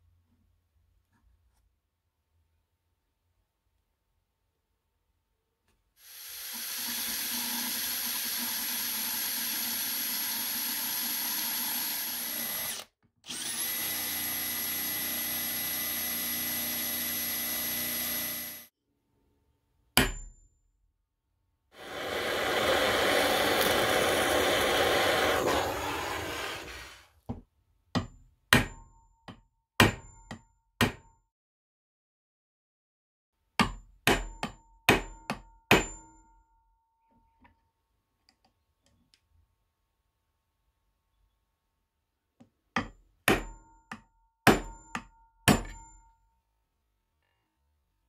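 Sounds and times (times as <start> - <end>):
hammer striking metal: 20.0 - 20.4
blowtorch flame hissing: 21.8 - 27.0.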